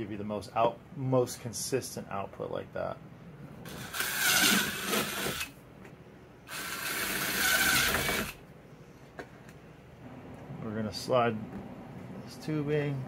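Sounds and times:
cordless drill cutting plastic: 3.7s - 5.6s, 6.5s - 8.4s.

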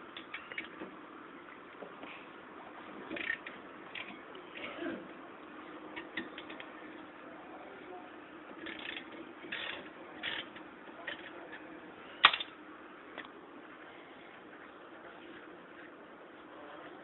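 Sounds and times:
ratchet clicking: 3.1s - 4.1s, 8.6s - 11.3s.

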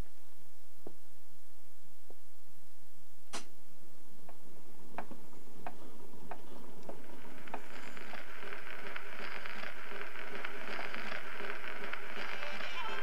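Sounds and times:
crackling hiss: 0.0s - 13.0s
slow even ticking: 4.2s - 13.0s.

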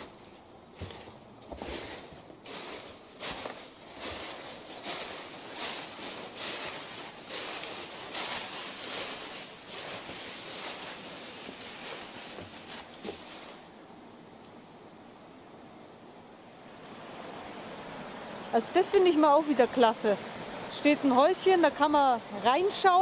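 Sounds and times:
footsteps crunching on gritty floor: 0.0s - 13.6s
rustling: 0.0s - 13.7s.

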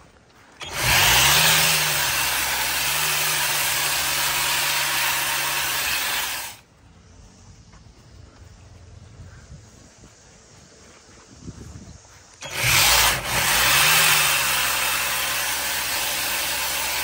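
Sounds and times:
electric grass trimmer whirring: 0.6s - 6.6s, 12.4s - 17.0s.

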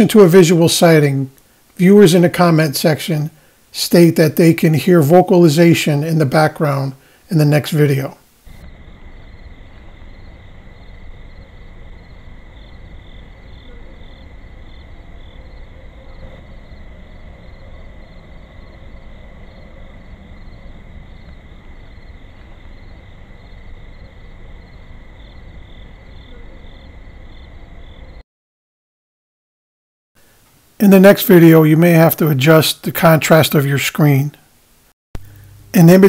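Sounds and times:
microphone hiss and rumble: 0.0s - 15.7s, 30.2s - 36.0s
crickets chirping: 7.9s - 28.2s.

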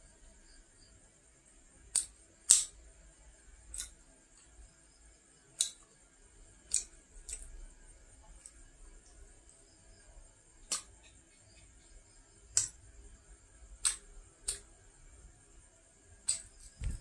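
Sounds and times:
crisp chewing clicks: 3.7s - 4.0s, 5.6s - 5.9s, 6.7s - 7.6s, 10.6s - 11.1s, 13.8s - 14.7s, 16.3s - 17.0s.

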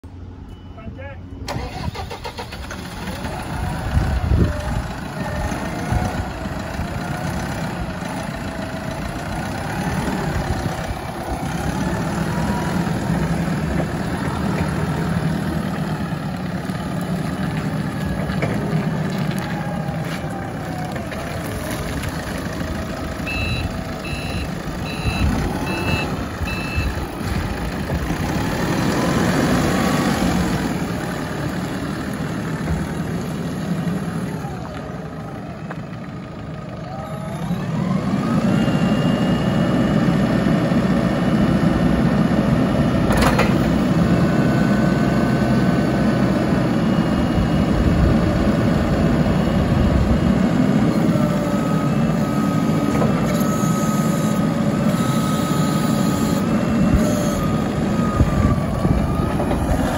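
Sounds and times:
forklift diesel engine running: 0.0s - 59.9s
reverse alarm beeping: 0.4s - 1.5s, 23.2s - 27.0s, 53.4s - 59.4s.

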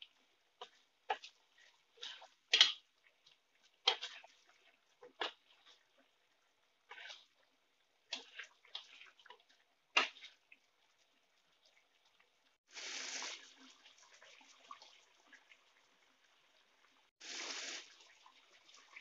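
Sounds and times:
sauce bubbling: 0.0s - 19.0s
spatula scraping wok: 0.6s - 6.1s, 6.8s - 10.4s.

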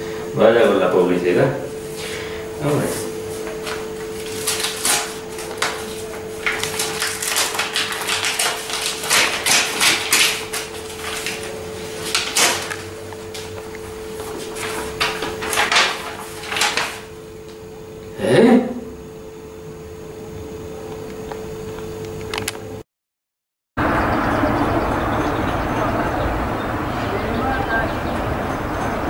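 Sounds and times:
steady hum: 0.0s - 22.8s, 23.8s - 29.0s
paper rustling and crinkling: 2.8s - 17.6s.

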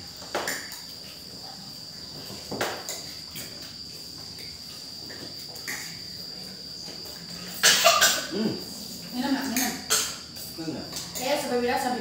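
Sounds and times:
cricket trill: 0.0s - 12.0s
cutlery clinking on plates: 5.4s - 6.0s, 9.4s - 11.4s.

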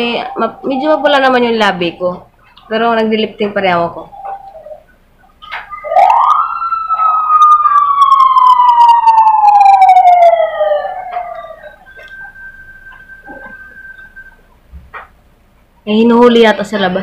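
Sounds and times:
police siren wailing: 0.0s - 2.0s, 5.4s - 14.4s.

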